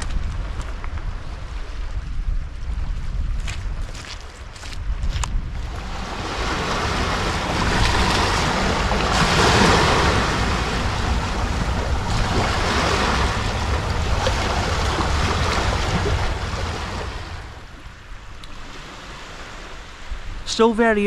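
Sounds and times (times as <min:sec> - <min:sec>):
wind buffeting microphone: 0:00.0 - 0:21.0
water lapping into gully: 0:05.6 - 0:20.2.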